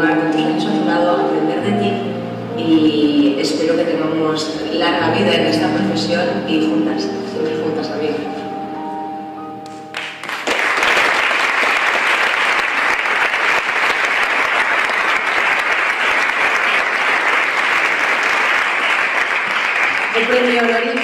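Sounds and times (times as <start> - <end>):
music clip playing: 0.1 - 10.5
audience applauding: 9.9 - 21.0.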